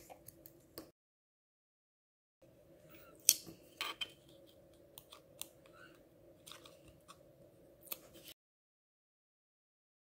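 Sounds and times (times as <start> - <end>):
faint steady hum: 2.4 - 8.3.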